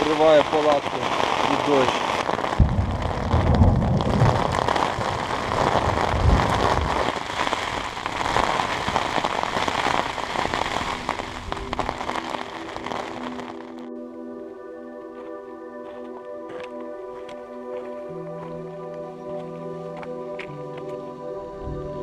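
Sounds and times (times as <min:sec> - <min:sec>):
rain pattering: 0:00.0 - 0:13.9
low rumble: 0:02.6 - 0:07.0.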